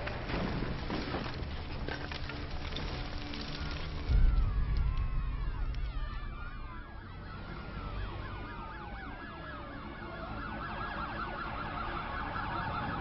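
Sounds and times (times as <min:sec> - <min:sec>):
low traffic rumble: 0:00.0 - 0:13.0
police sirens: 0:03.7 - 0:13.0.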